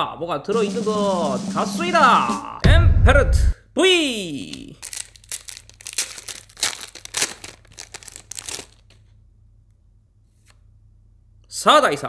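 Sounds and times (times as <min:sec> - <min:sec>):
foil wrapper tearing and crinkling: 0:04.5 - 0:09.1.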